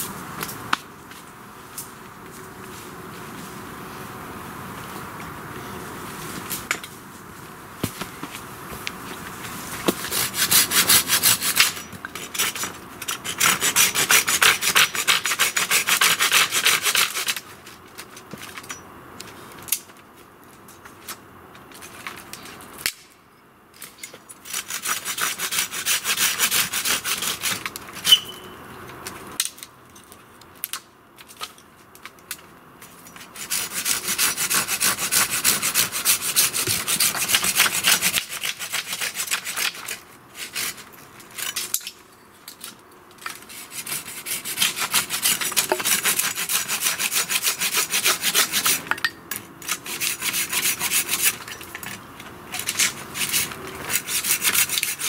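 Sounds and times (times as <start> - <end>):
saw cutting wooden poles: 9.2 - 18.6, 24.4 - 28.4, 32.8 - 41.8, 42.6 - 55.0.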